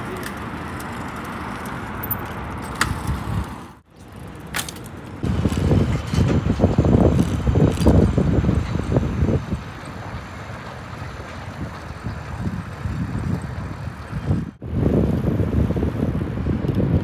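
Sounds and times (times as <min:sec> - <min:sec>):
passing road traffic hiss: 0:00.0 - 0:16.5
wind buffeting microphone: 0:05.1 - 0:17.0.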